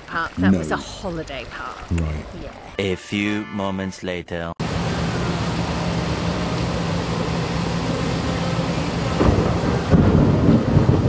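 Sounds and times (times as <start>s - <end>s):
heavy rain pouring: 0.0s - 2.8s, 4.6s - 11.0s
thunder: 9.0s - 11.0s.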